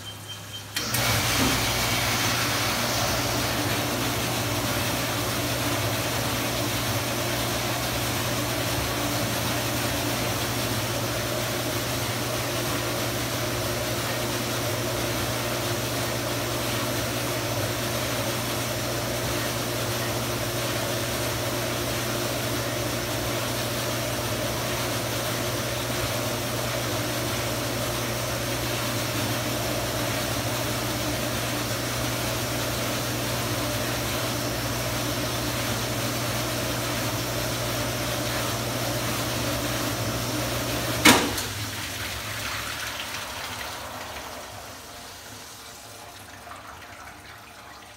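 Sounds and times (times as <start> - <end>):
dishwasher pump motor hum: 0.0 - 47.9
dishwasher hiss: 0.9 - 5.9, 40.5 - 46.2.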